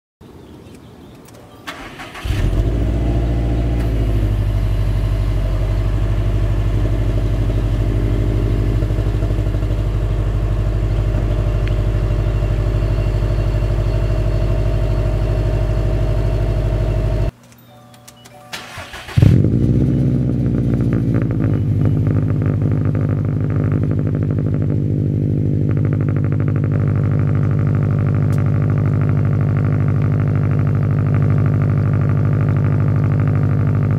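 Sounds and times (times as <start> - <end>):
car engine cranking and idling: 1.0 - 17.5, 18.1 - 33.9
engine exhaust bark: 1.7 - 17.3, 18.6 - 33.9.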